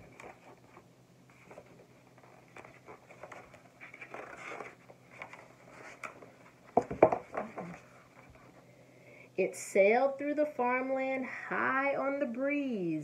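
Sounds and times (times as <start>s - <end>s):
paper pages rustling: 0.0s - 8.6s
page flapping over: 0.1s - 7.8s.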